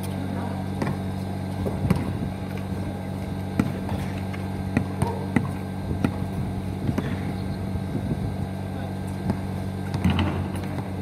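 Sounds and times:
low hum: 0:00.0 - 0:11.0
basketball bouncing on concrete: 0:00.7 - 0:02.8, 0:03.4 - 0:07.4, 0:09.1 - 0:11.0.

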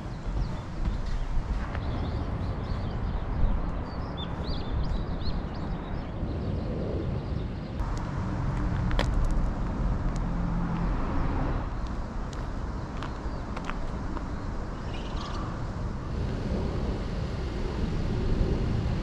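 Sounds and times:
small birds chirping: 0:00.0 - 0:07.8, 0:11.8 - 0:15.7
steady low rumble: 0:00.0 - 0:19.0.

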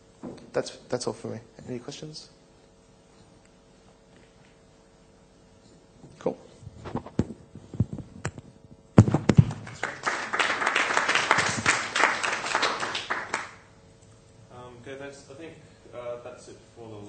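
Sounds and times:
audience applause: 0:09.4 - 0:13.6.

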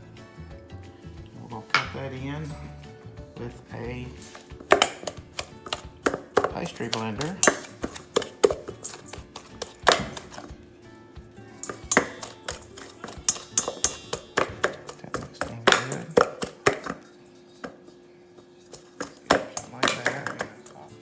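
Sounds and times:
pastry blender clinking on steel bowl: 0:04.7 - 0:10.5, 0:11.6 - 0:17.0, 0:19.0 - 0:20.8.

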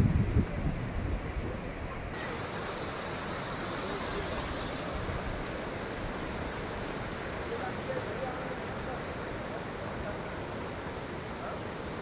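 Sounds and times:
river rushing: 0:00.8 - 0:12.0.

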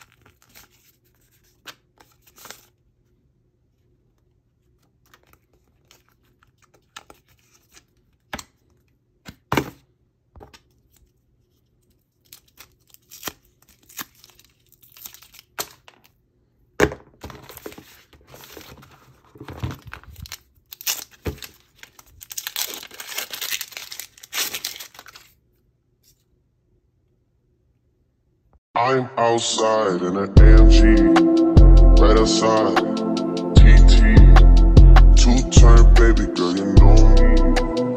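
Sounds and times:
paper wrap tearing: 0:00.0 - 0:02.7, 0:12.2 - 0:15.9, 0:20.0 - 0:25.4
packaging crinkling and rustling: 0:00.0 - 0:02.8, 0:04.6 - 0:09.0, 0:10.4 - 0:16.2, 0:17.2 - 0:25.5.

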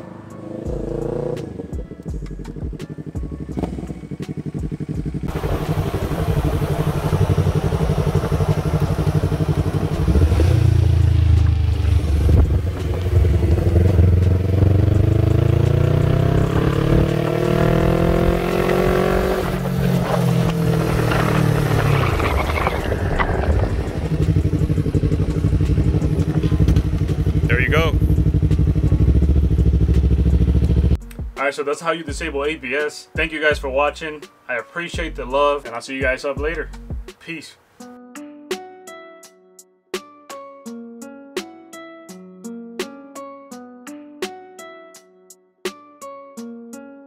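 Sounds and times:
motorcycle engine running: 0:00.4 - 0:31.0.

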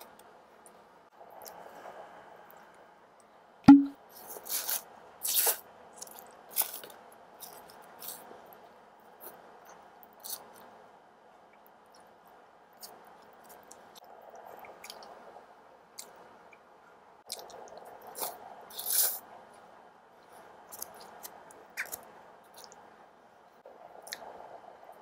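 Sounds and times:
chewing noodles: 0:17.3 - 0:19.2.

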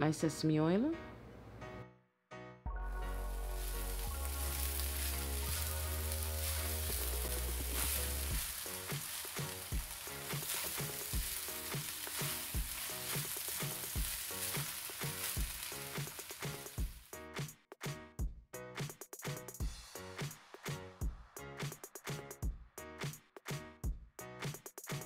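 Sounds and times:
background music with beat: 0:02.7 - 0:25.0
rice sizzling in wok: 0:02.9 - 0:17.2
spatula stirring in wok: 0:03.6 - 0:17.0.

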